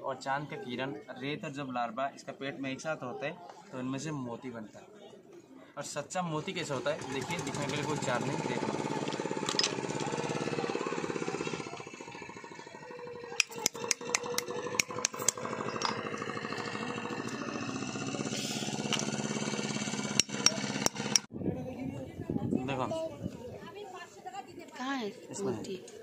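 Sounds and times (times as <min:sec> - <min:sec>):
boat engine chugging: 0:07.0 - 0:21.3
knife clicking on shellfish shells: 0:13.4 - 0:15.9, 0:20.2 - 0:21.3.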